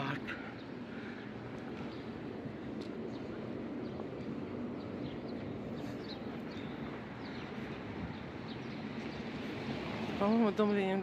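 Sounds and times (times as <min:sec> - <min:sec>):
small birds chirping: 0:00.0 - 0:11.0
traffic hum: 0:00.0 - 0:11.0.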